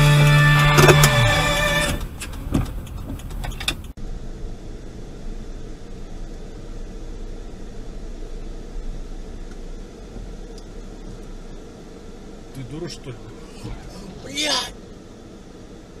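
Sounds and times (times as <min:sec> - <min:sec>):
music: 0:00.0 - 0:02.0
car engine and road noise: 0:00.0 - 0:16.0.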